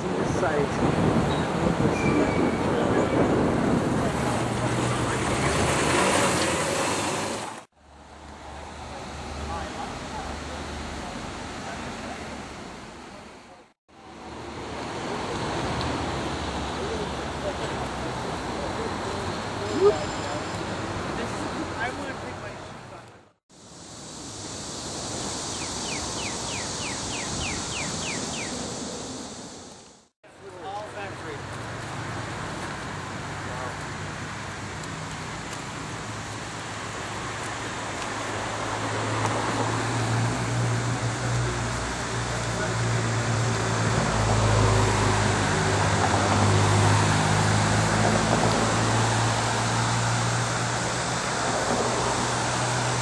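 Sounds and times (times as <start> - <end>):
distant traffic: 0.0 - 53.0
outdoor background noise: 0.0 - 53.0
wind: 0.0 - 53.0
bird call descending notes: 25.5 - 28.7.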